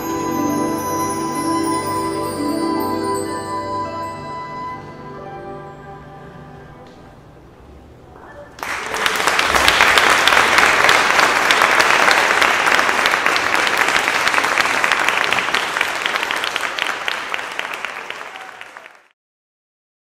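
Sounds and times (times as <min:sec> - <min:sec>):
audience applauding: 0:08.6 - 0:19.2.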